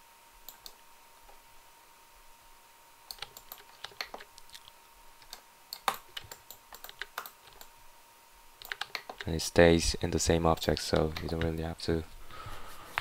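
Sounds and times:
keyboard and mouse clicking: 0.5 - 0.8, 3.1 - 7.7, 8.6 - 9.4, 10.5 - 11.6.

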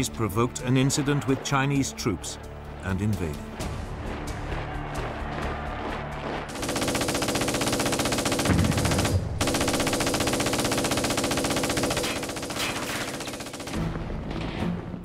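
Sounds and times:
machine-gun fire: 6.5 - 13.9.

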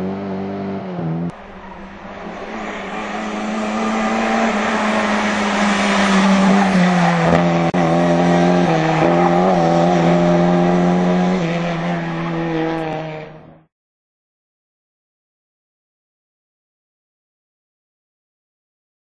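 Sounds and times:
car engine at high revs: 0.0 - 13.7.

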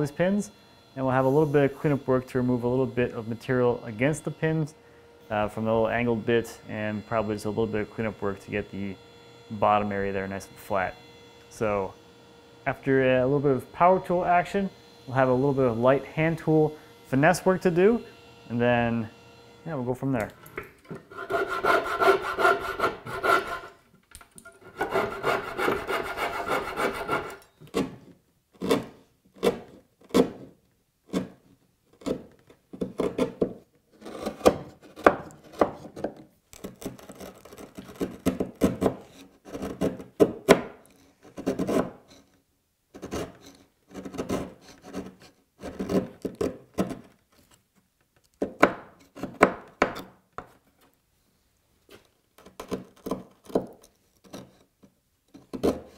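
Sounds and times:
coping saw cutting wood: 0.0 - 20.2, 21.0 - 23.8, 24.6 - 27.9
chisel paring wood: 20.2 - 23.7, 24.6 - 30.5, 31.1 - 42.3, 42.9 - 47.2, 48.3 - 50.6, 52.4 - 55.9.

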